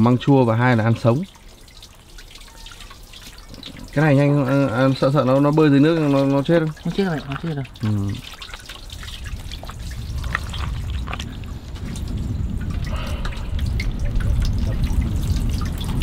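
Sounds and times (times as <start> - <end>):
water splashing and trickling: 0.0 - 16.0.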